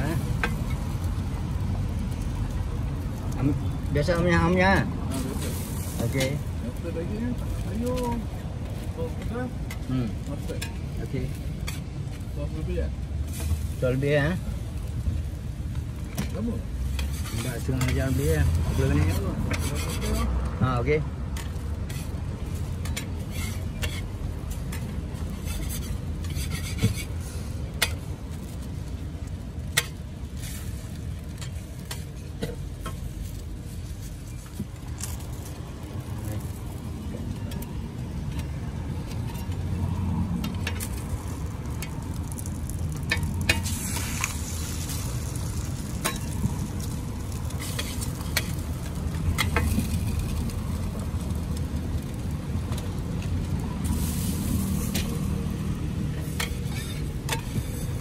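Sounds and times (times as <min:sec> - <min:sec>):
food sizzling on griddle: 0:00.0 - 0:58.0
metal spatula clicking and scraping: 0:16.1 - 0:20.3, 0:21.3 - 0:28.6, 0:29.6 - 0:35.6, 0:40.4 - 0:50.8, 0:56.1 - 0:58.0.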